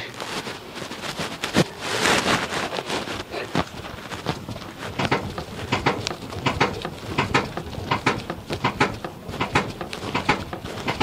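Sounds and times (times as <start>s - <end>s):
suspension clunking and knocking: 4.4s - 11.0s.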